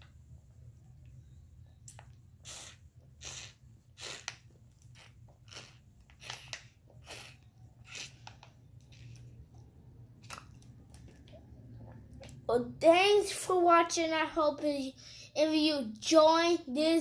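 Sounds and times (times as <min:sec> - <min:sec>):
child sucking from juice pouch: 0:02.4 - 0:09.3.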